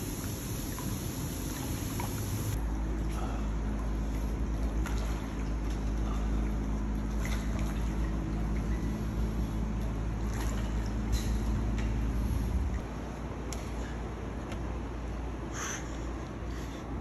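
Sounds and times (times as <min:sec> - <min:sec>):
water churning: 0:00.0 - 0:12.9
water splashes: 0:00.0 - 0:12.9
pump hum: 0:00.0 - 0:17.0.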